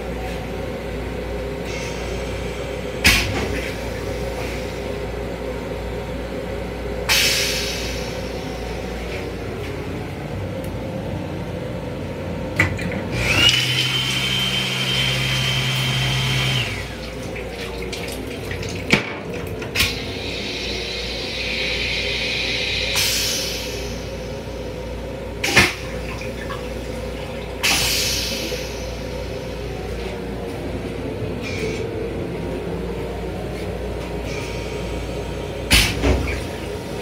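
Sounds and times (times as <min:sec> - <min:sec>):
railcar running rumble: 0:00.0 - 0:13.5, 0:16.6 - 0:37.0
hand dryer blowing: 0:13.2 - 0:18.9.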